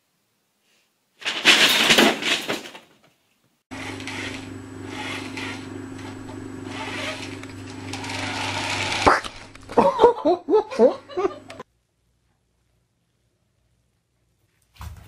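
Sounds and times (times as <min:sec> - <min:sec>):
steady low hum: 0:03.7 - 0:11.6.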